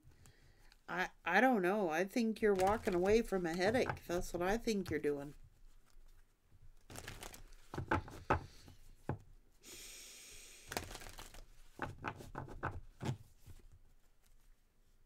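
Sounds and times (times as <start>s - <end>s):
cards being shuffled: 2.4s - 8.8s, 10.7s - 14.5s.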